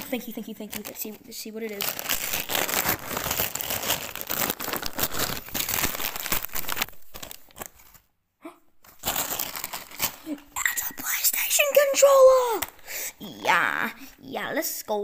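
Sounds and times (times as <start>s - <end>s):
wrapping paper tearing and crinkling: 0.0s - 8.1s, 8.8s - 10.5s.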